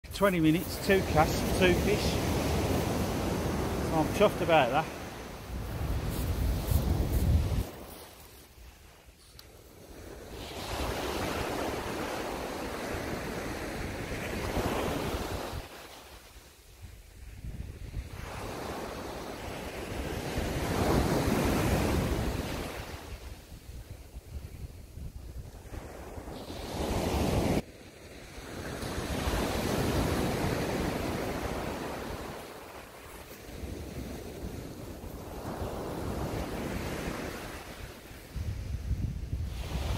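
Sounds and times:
surf breaking on beach: 0.2 - 8.6
wind buffeting microphone: 5.4 - 8.0, 38.3 - 39.9
wind rumble on microphone: 5.5 - 8.0, 16.8 - 27.6, 33.5 - 39.9.

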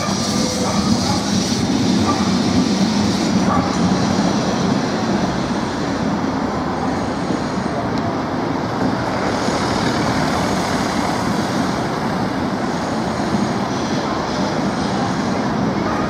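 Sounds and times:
city traffic: 0.0 - 16.0
electric trams rolling on tracks: 0.0 - 16.0.

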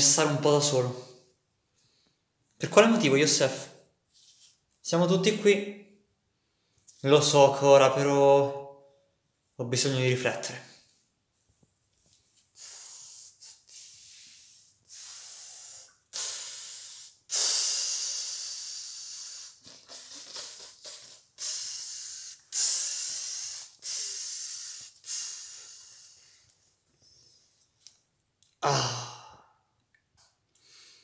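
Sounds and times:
person sighing breathily: 28.6 - 29.7.

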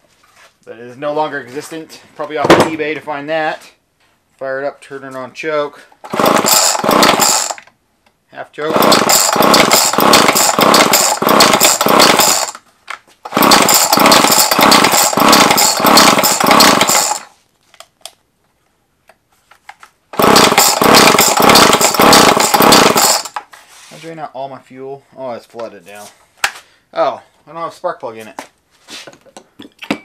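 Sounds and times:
chainsaw engine turning over: 6.0 - 7.7, 8.6 - 12.6, 13.2 - 17.4, 20.1 - 23.5
chainsaw starter cord pulls: 6.0 - 7.8, 8.6 - 12.6, 13.2 - 17.4, 20.1 - 23.5.

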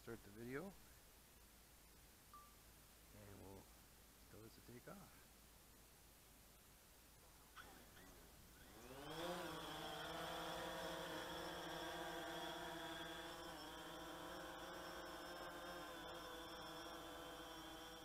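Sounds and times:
drone propellers whining: 7.6 - 18.0.

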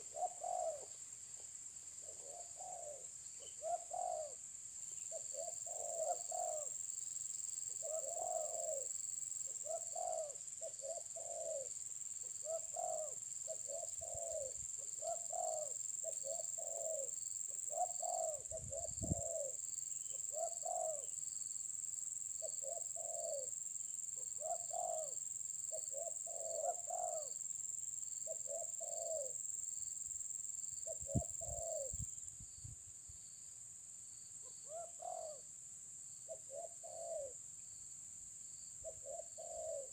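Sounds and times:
dove cooing: 0.0 - 1.0, 2.0 - 4.4, 5.1 - 6.8, 7.7 - 8.9, 9.5 - 11.7, 12.4 - 19.6, 20.2 - 21.1, 22.4 - 23.5, 24.2 - 27.4, 28.2 - 29.4, 30.8 - 32.0, 34.6 - 35.4, 36.3 - 37.4, 38.8 - 39.9.

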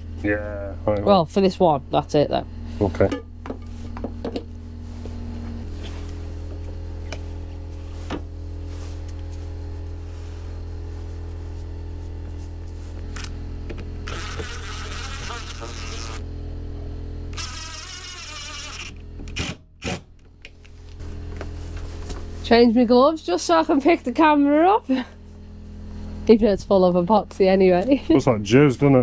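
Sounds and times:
generator droning: 0.0 - 29.0
high hissing noise: 14.0 - 16.2.

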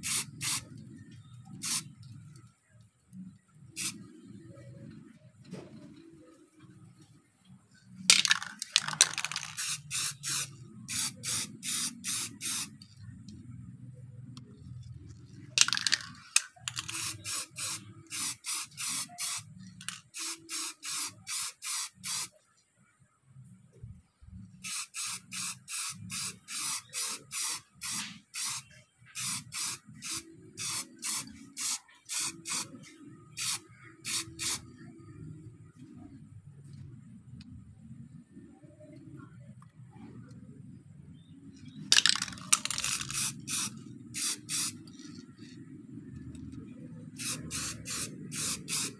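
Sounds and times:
spray paint can hissing: 0.0 - 0.8, 1.5 - 1.9, 3.8 - 4.1, 8.1 - 13.0, 15.6 - 22.3, 24.6 - 34.7, 41.9 - 45.6, 47.1 - 48.9.

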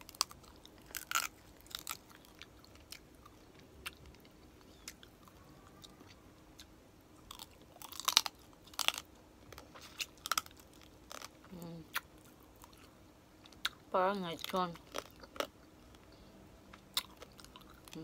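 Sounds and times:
crunches of fried skin: 0.0 - 4.9, 7.3 - 12.8
person chewing crispy food: 0.0 - 13.8, 14.4 - 16.1, 16.7 - 18.0.

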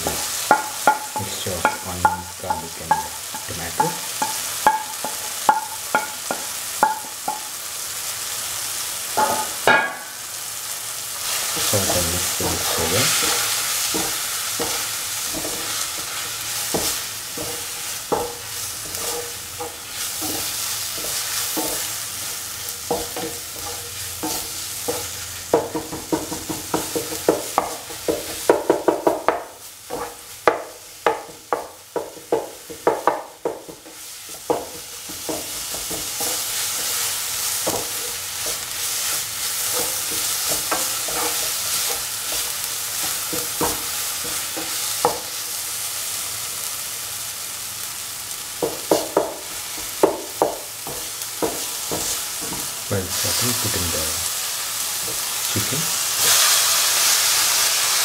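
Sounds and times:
spatula knocking against pan: 0.0 - 7.5, 9.2 - 10.2, 22.8 - 36.9, 48.6 - 52.7
masala sizzling in a hot pan: 0.0 - 58.0
spatula stirring and scraping: 11.2 - 30.4, 31.2 - 45.5, 48.7 - 53.7.

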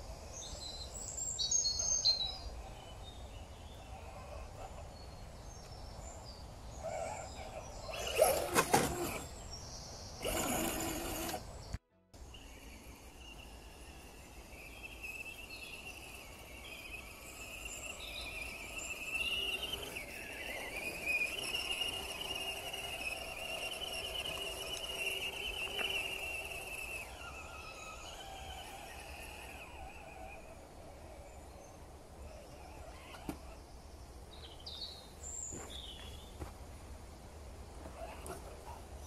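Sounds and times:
toy car electric motor whining: 6.7 - 9.4, 10.2 - 11.8, 12.5 - 33.7, 37.8 - 38.8.

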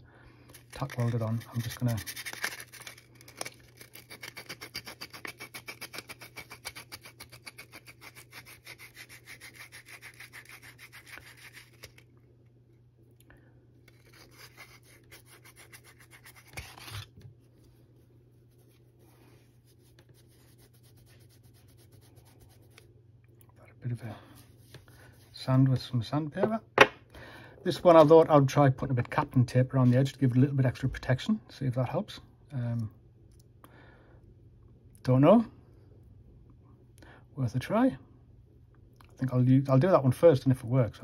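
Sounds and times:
sandpaper rubbing on metal: 4.0 - 11.9.

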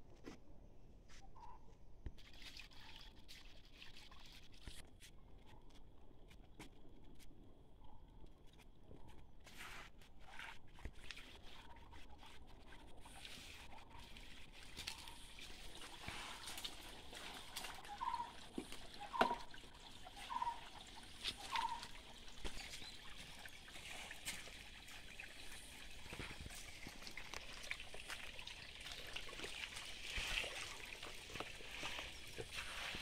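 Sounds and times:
stream trickling over rocks: 2.1 - 5.4, 10.1 - 33.0.

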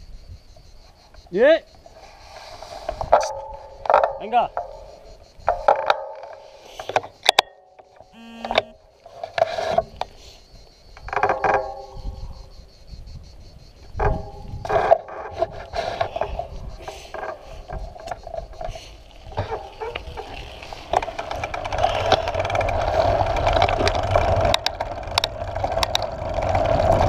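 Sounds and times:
bike rattling: 1.4 - 27.0
short squealing tones: 7.9 - 9.1, 14.6 - 21.0
freewheel ticking: 17.6 - 27.0.

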